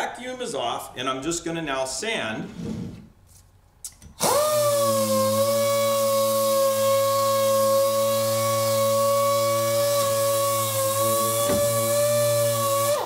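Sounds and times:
orbital sander whining: 4.2s - 13.0s.

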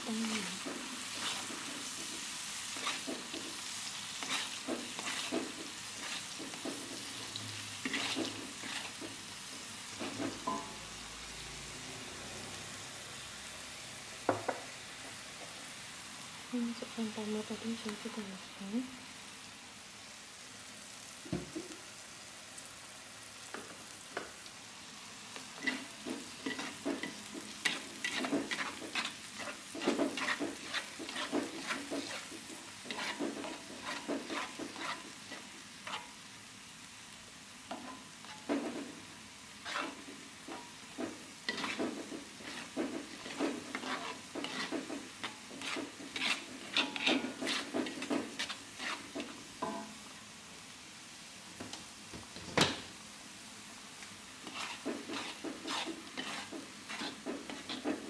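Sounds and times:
low sizzle: 0.0s - 58.0s
wooden spatula scraping wok: 0.1s - 10.7s, 25.4s - 36.2s, 37.7s - 50.0s, 54.4s - 58.0s.

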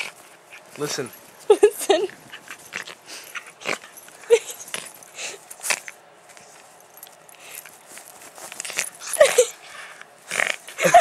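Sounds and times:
puppy whining: 1.5s - 6.0s, 8.6s - 9.6s
fabric rustling: 3.9s - 9.4s.

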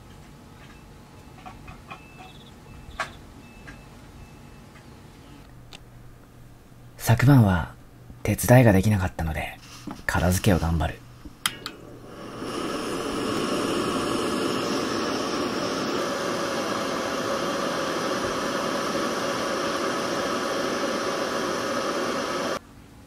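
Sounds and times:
gas stove burner hissing: 9.5s - 22.6s.

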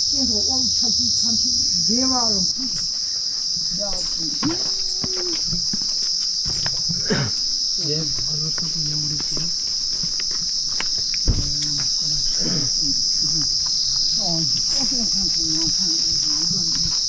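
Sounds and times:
insects droning: 0.0s - 17.0s
low voice murmuring: 3.8s - 5.7s, 11.4s - 17.0s
low thump: 11.2s - 11.6s.

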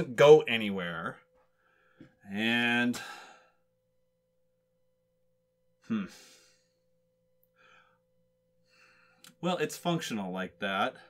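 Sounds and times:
faint steady hum: 0.0s - 11.0s
man sighing: 2.7s - 3.5s, 5.8s - 6.6s.

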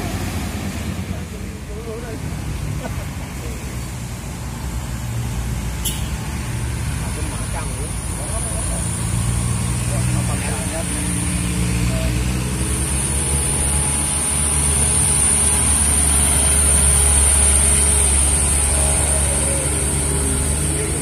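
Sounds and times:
diesel truck engine passing: 0.0s - 21.0s
high-pitched whine: 10.2s - 21.0s.

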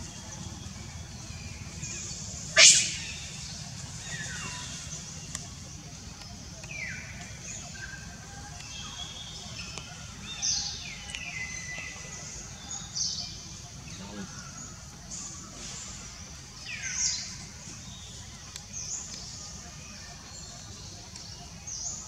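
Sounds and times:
steady low background noise: 0.0s - 22.0s
high-pitched chirping animal calls: 2.6s - 3.4s.

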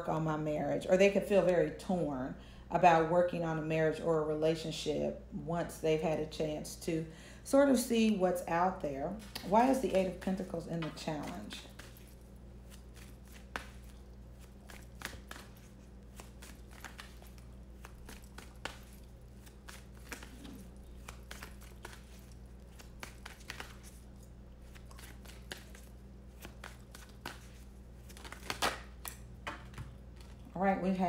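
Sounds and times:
steady low hum: 0.0s - 31.0s
cards being shuffled: 11.0s - 30.4s.

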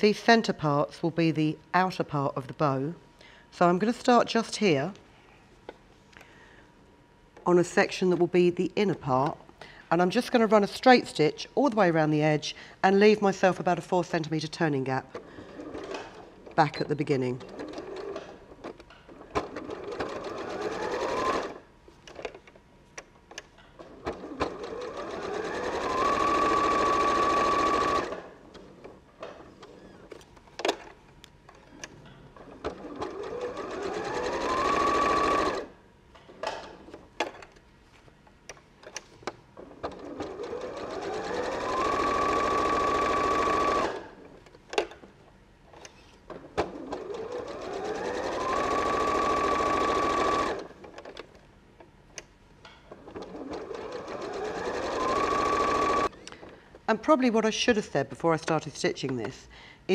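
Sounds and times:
electric sewing machine stitching: 15.2s - 16.6s, 17.4s - 21.6s, 23.8s - 29.0s, 32.4s - 35.8s, 39.6s - 44.3s, 46.5s - 51.0s, 53.0s - 56.1s.

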